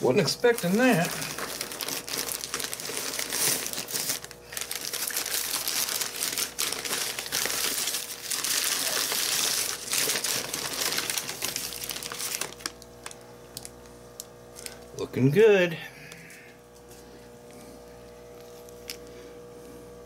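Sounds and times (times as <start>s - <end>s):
crumpled newspaper rustling: 0.0s - 13.2s.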